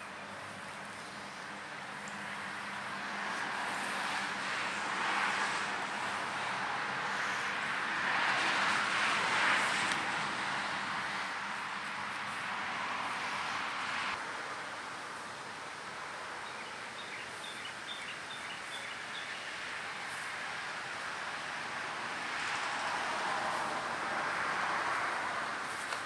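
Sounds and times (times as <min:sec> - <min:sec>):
steady rushing hiss: 0:00.0 - 0:26.0.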